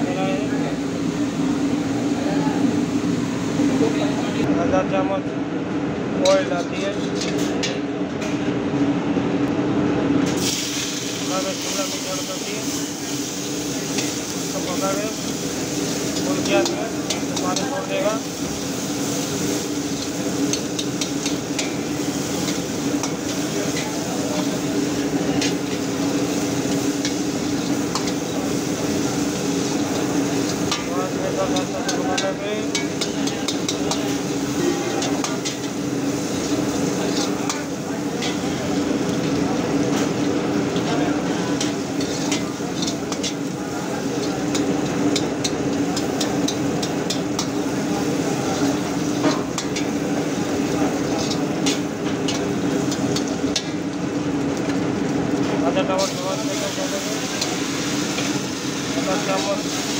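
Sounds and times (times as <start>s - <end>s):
vegetables sizzling in hot oil: 10.2s - 59.9s
metal ladle scraping a wok: 41.6s - 43.5s.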